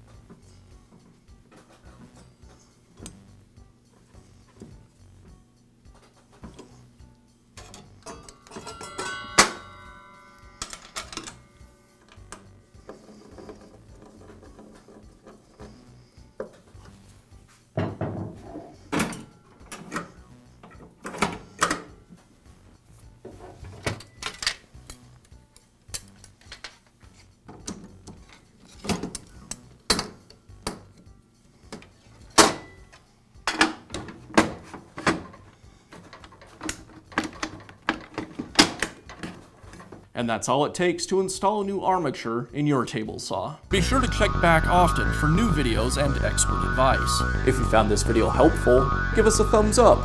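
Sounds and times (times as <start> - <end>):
metal and plastic parts clicking: 35.0 - 39.9.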